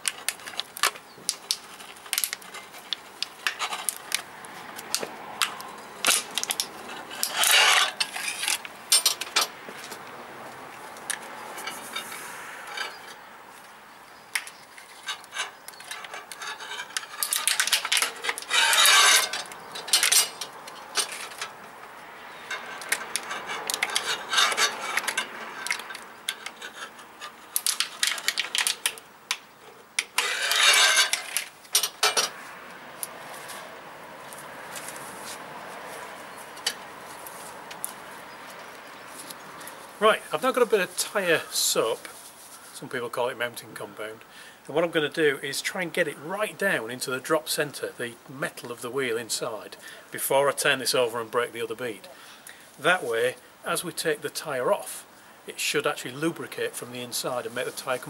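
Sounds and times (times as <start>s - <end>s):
metallic clinks and rattles: 5.4s - 9.5s, 15.0s - 21.6s, 30.2s - 32.4s
tyre scraping off rim: 14.9s - 21.6s, 30.0s - 32.4s.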